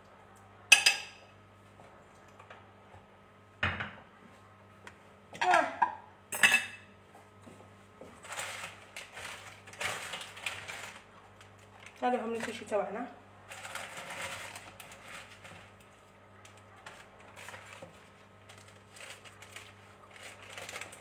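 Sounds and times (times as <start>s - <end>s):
dishes and utensils clattering: 5.4s - 6.9s
scraping and rustling: 8.0s - 12.7s, 13.5s - 16.0s, 16.8s - 21.0s.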